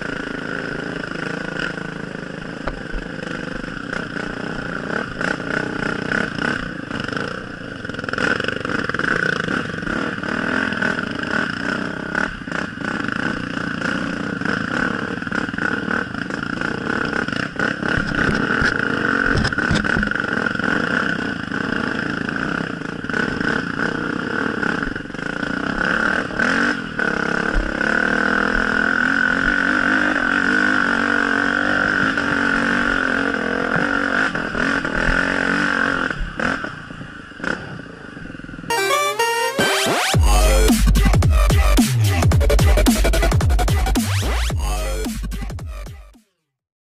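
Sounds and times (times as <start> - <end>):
dirt bike engine revving: 0.0 - 37.8, 38.7 - 46.2
bike knocking over rough ground: 18.0 - 20.2.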